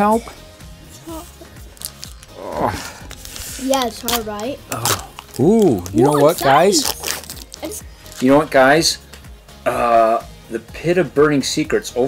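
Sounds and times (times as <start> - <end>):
boy grunting with effort: 2.4 - 3.0, 4.7 - 5.1.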